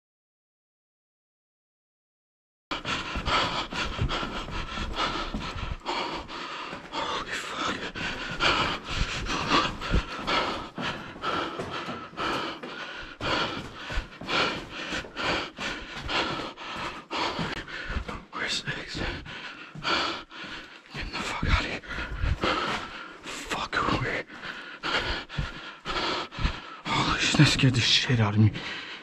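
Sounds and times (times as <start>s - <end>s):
person panting: 2.7s - 29.0s
low thuds of movement: 2.8s - 20.2s.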